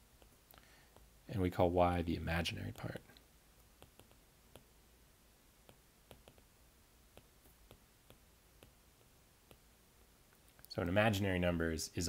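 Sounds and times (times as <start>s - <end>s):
stylus tapping on glass screen: 3.7s - 4.7s, 5.6s - 6.5s, 7.1s - 9.7s.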